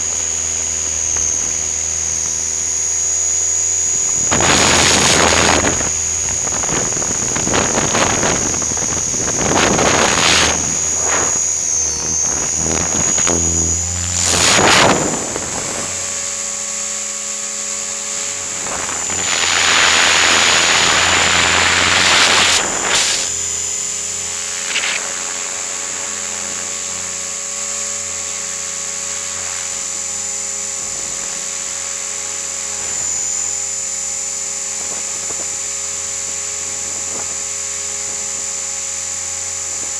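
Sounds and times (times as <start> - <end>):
rc helicopter motor whine: 0.0 - 39.9
rotor hum: 0.0 - 39.9
rushes of air noise: 4.3 - 16.6, 18.1 - 23.7.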